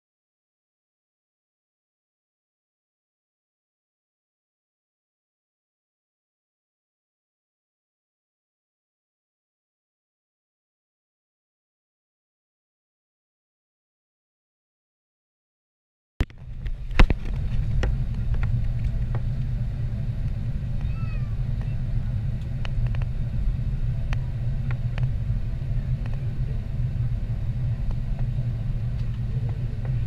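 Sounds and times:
low rumble in aircraft cabin: 16.2s - 30.0s.

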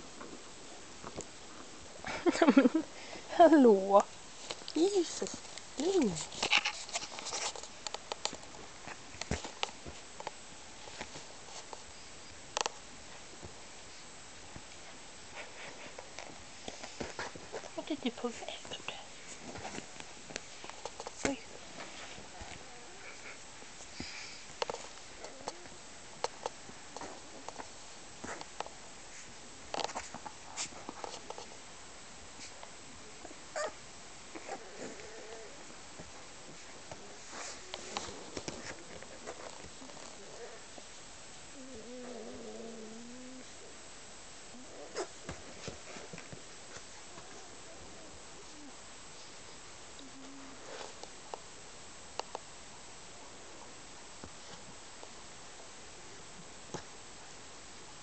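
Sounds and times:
puppies rustling: 0.0s - 11.9s, 12.6s - 31.6s, 32.3s - 42.1s
shuffling in bedding: 35.6s - 40.7s.

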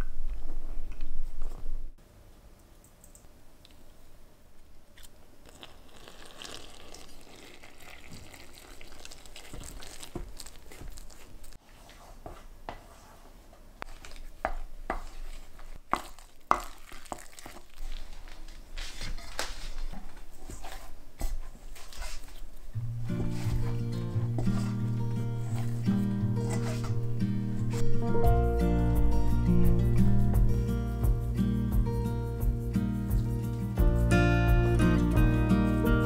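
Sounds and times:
hands kneading dough: 5.5s - 22.6s, 23.2s - 27.0s
chopsticks scraping a metal bowl: 26.4s - 27.0s.

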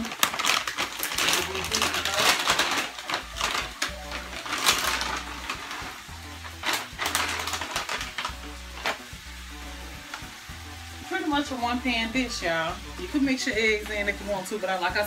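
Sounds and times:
plastic pouch crinkling: 0.0s - 10.4s.

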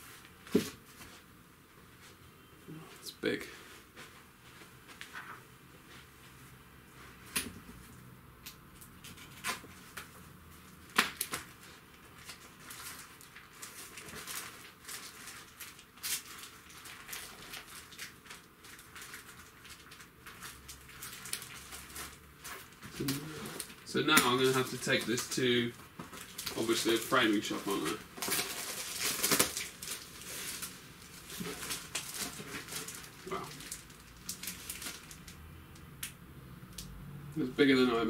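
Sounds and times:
cardboard packaging handled: 12.2s - 35.2s.

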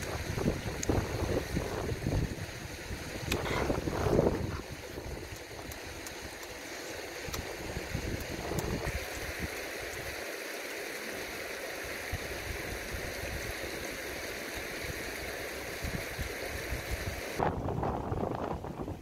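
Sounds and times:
wind buffeting microphone: 0.0s - 5.8s, 7.3s - 9.5s, 15.8s - 19.0s
river running over stones: 0.0s - 17.4s.

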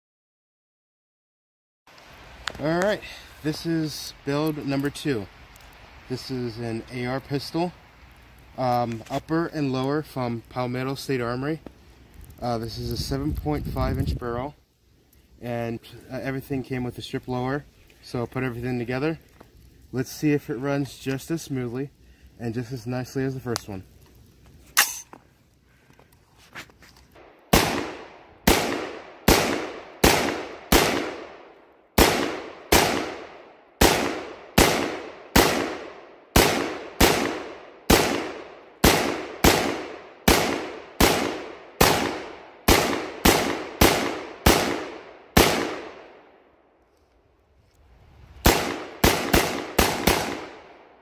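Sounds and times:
rifle shots with echo: 27.5s - 46.3s, 48.4s - 51.0s.

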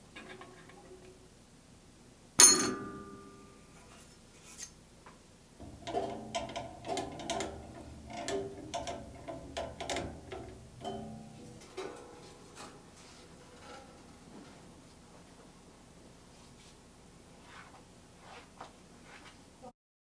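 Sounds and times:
sharp metallic clicks ringing: 2.4s - 3.3s.

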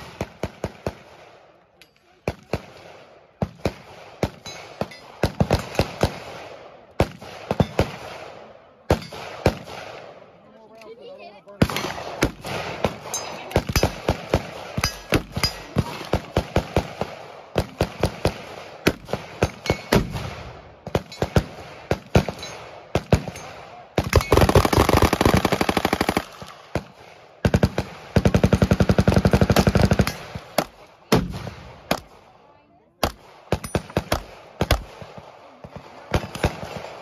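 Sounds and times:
single gunshots: 11.6s - 22.4s, 29.6s - 32.2s
rapid automatic gunfire: 11.8s - 23.4s, 24.0s - 32.1s, 33.0s - 37.0s.

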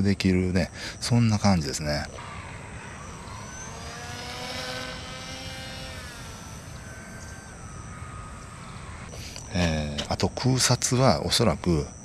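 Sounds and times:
model plane propeller whining: 1.0s - 10.1s.

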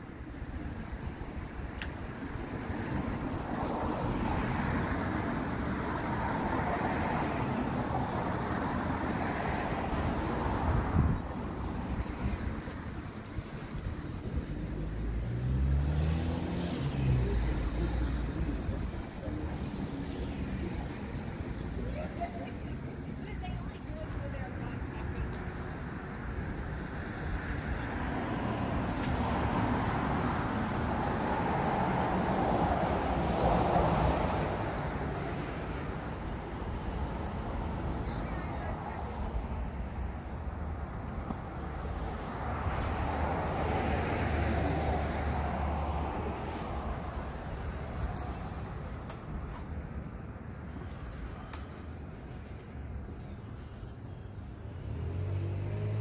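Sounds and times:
wind rumbling on microphone: 0.0s - 15.2s
road traffic passing: 0.0s - 56.0s
wind rumble on microphone: 9.7s - 15.1s.

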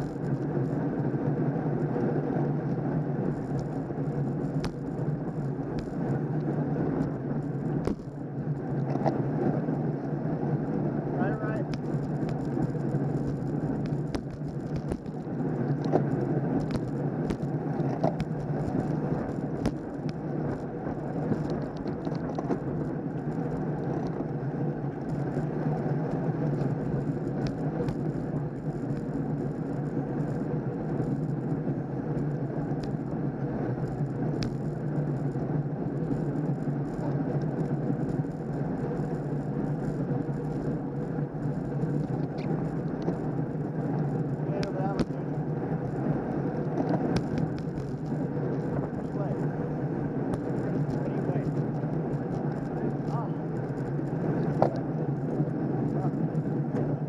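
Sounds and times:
wind and road noise rumble: 0.0s - 57.0s
small clicks and rattles: 11.6s - 24.4s, 25.0s - 31.5s, 32.1s - 46.1s, 46.7s - 49.6s.

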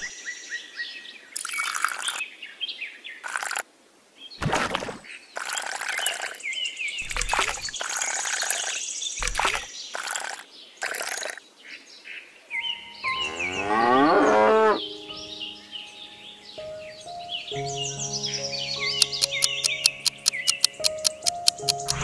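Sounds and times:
birds chirping: 0.0s - 3.6s, 4.3s - 22.0s
pebbles knocking: 7.0s - 11.4s
cow mooing: 13.3s - 14.8s.

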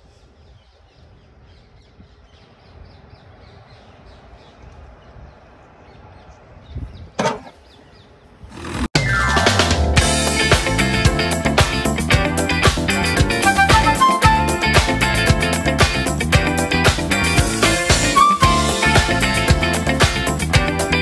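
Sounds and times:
faint outdoor background noise: 0.0s - 8.9s
music with repeating beat: 9.0s - 21.0s.

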